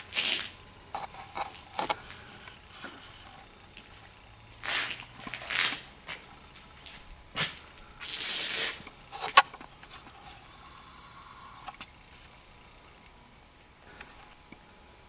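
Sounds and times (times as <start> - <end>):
footsteps crunching on dry ground: 0.0 - 10.2.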